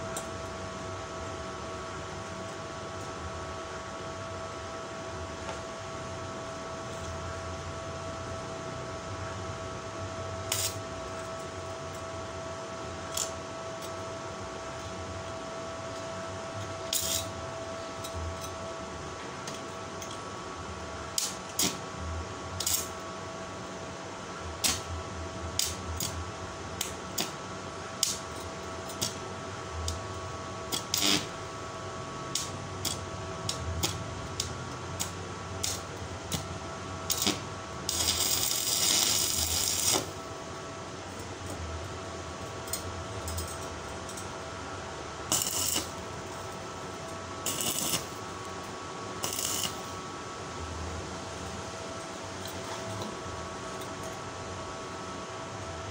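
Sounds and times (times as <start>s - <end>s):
faint steady hum: 0.0s - 55.9s
arc welding crackles: 10.3s - 12.1s, 15.9s - 18.6s, 21.0s - 23.2s, 24.5s - 44.4s, 45.2s - 50.6s.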